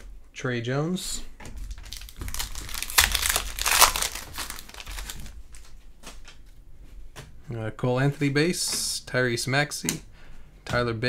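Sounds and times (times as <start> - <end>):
foil wrapper tearing and crinkling: 1.8 - 5.4.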